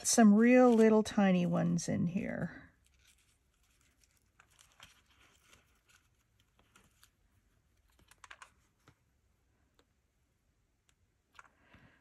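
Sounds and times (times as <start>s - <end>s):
paper rustling: 0.0s - 1.5s, 2.8s - 9.1s.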